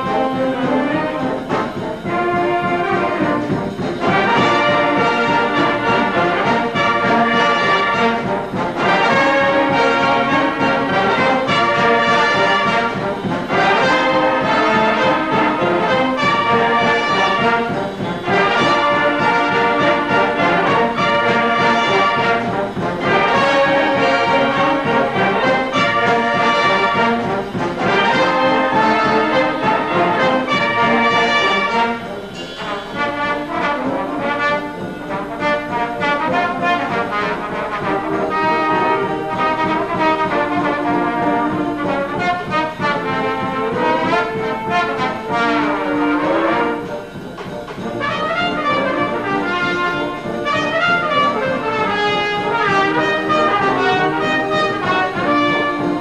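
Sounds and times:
brass band playing: 0.0s - 56.0s.

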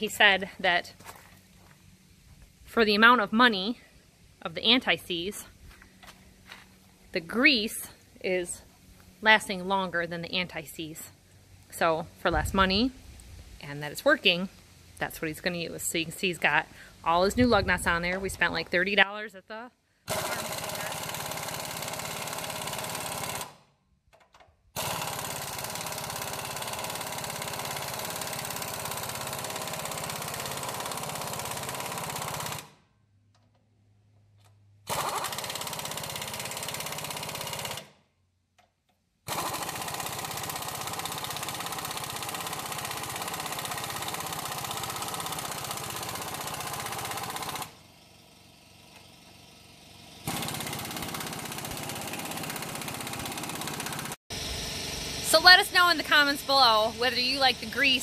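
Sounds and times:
pneumatic impact wrench hammering: 20.1s - 32.8s, 34.8s - 38.0s, 39.2s - 57.7s.

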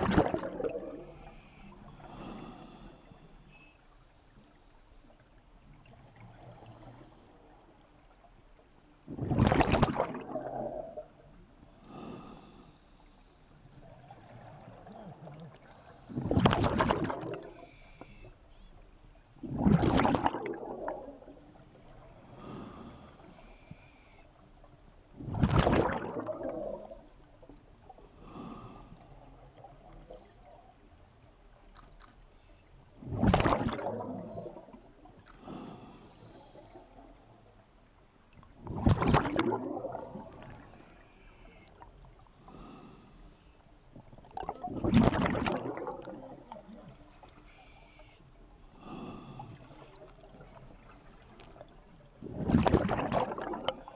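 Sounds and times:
exhaled bubbles gushing underwater: 0.0s - 1.2s, 9.1s - 11.2s, 13.8s - 17.6s, 19.4s - 22.1s, 25.2s - 27.1s, 33.0s - 35.1s, 38.5s - 40.7s, 44.0s - 47.3s, 51.6s - 53.9s
diver breathing in: 0.6s - 3.8s, 6.4s - 7.6s, 11.6s - 14.8s, 15.5s - 16.5s, 17.3s - 18.6s, 22.0s - 24.4s, 28.0s - 30.6s, 34.1s - 37.2s, 39.9s - 43.7s, 47.2s - 51.7s.

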